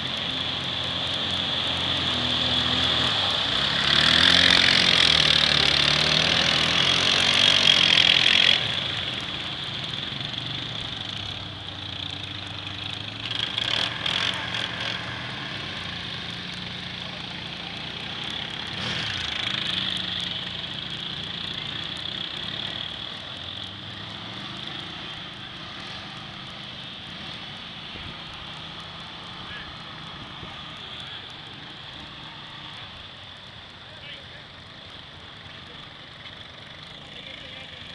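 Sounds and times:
atv engines revving: 0:00.0 - 0:37.9
tires churning through muddy water: 0:00.0 - 0:37.9.

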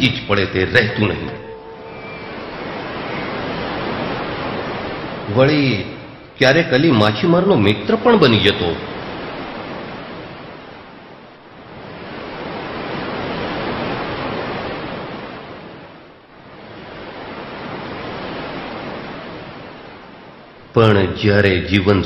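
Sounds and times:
surf washing onto shore: 0:01.4 - 0:05.9, 0:11.6 - 0:20.0.

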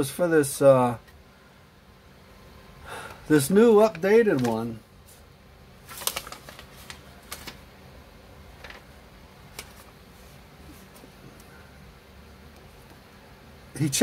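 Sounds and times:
paper handling: 0:03.8 - 0:05.2, 0:05.8 - 0:07.7, 0:08.6 - 0:11.1.

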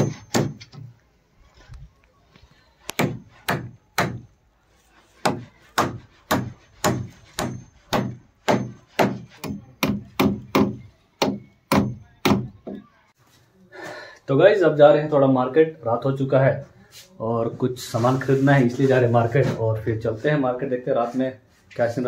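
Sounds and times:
hammer striking wooden stake: 0:00.0 - 0:00.9, 0:02.9 - 0:04.3, 0:05.2 - 0:12.8.

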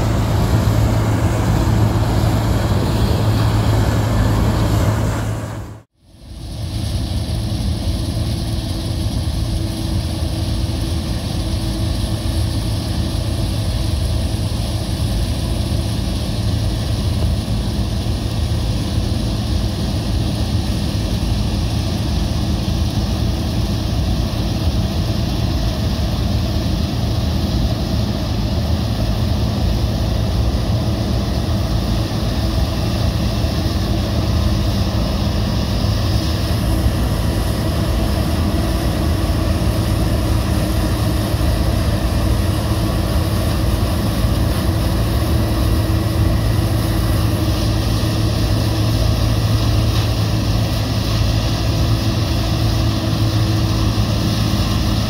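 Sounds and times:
combine harvester droning: 0:00.0 - 0:55.0
tractor engine: 0:00.0 - 0:55.0.

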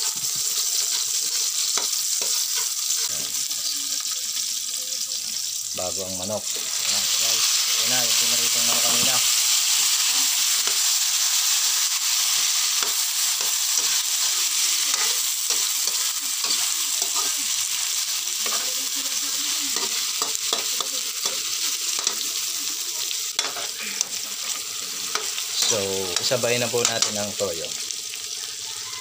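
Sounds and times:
spatula scraping a pan: 0:00.0 - 0:03.2, 0:06.5 - 0:22.2, 0:23.4 - 0:27.3
chicken sizzling in hot oil: 0:00.0 - 0:29.0.

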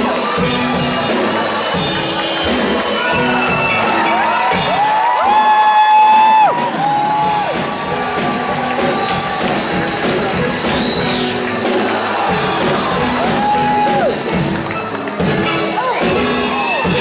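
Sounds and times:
crowd cheering: 0:00.0 - 0:17.0
steel band playing: 0:00.0 - 0:17.0
long whoops: 0:02.9 - 0:09.6, 0:12.0 - 0:14.2.

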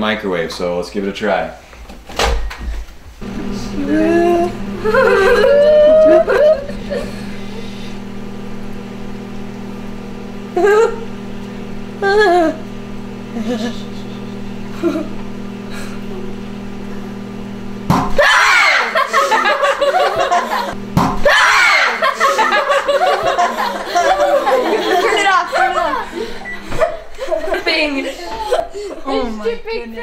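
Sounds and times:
microwave oven humming: 0:02.4 - 0:29.9
people talking: 0:03.3 - 0:06.4, 0:22.1 - 0:30.0
children talking and laughing: 0:03.4 - 0:08.0, 0:12.0 - 0:16.4, 0:18.2 - 0:30.0
egg bursting with sharp sound: 0:17.9 - 0:18.2, 0:20.9 - 0:21.3.

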